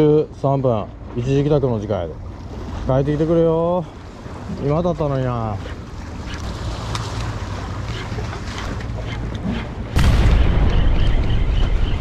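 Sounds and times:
wind buffeting microphone: 5.6 - 12.0.

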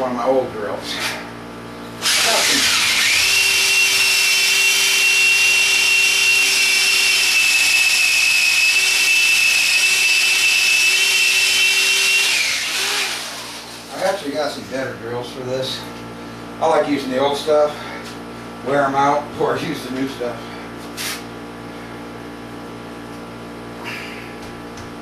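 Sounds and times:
electric drill boring into concrete: 2.0 - 13.9.

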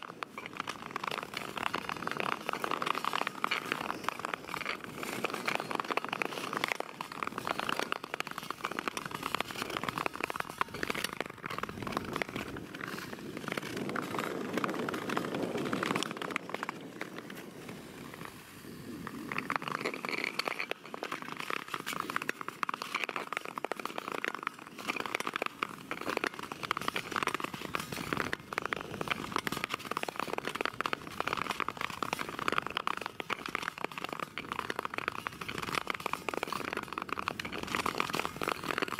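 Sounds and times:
ice skates scraping on ice: 0.0 - 38.9.

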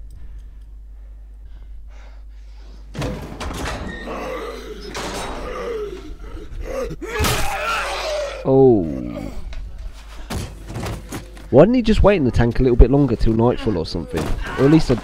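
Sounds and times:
low steady hum: 0.0 - 15.0
heavy metal hatch slam: 2.9 - 5.7.

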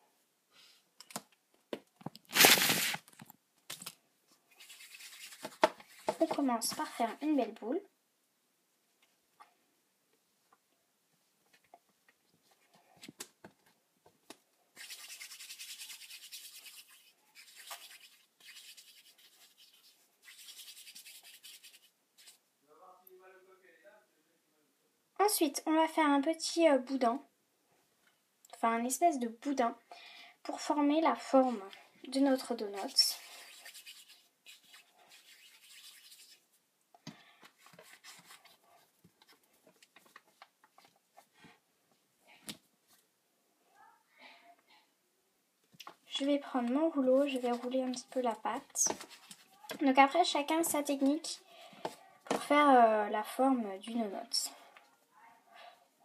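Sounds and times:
palms rubbing clay: 4.6 - 7.0, 37.4 - 41.3.

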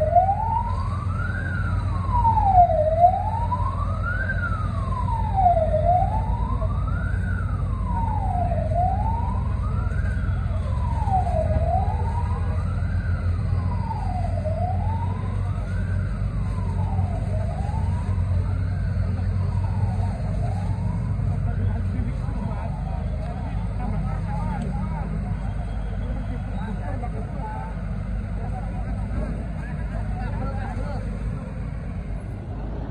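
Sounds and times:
fire truck siren wailing: 0.0 - 32.9
steady low rumble: 27.8 - 32.9.

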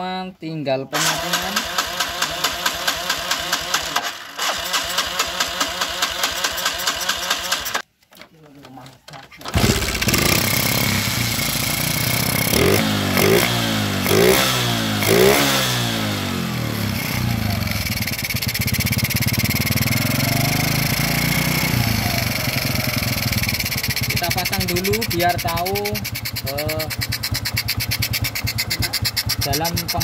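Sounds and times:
motorcycle engine throttle blips: 9.5 - 30.0
motorcycle engine idling: 9.6 - 15.3, 15.9 - 30.0.

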